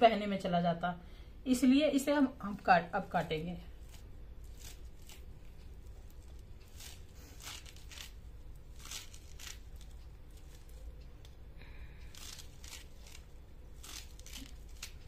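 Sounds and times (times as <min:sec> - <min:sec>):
low steady hum: 0:00.0 - 0:15.0
greens snapping and tearing: 0:03.8 - 0:11.4, 0:12.0 - 0:15.0.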